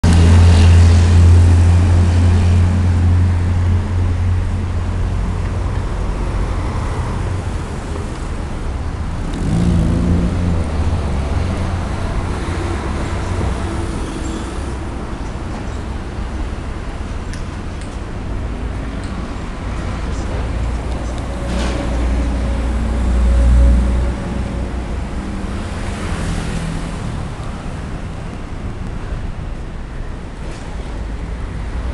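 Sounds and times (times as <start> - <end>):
heavy vehicle rumble: 0.0 - 31.9
vehicle engine passing: 9.0 - 14.8.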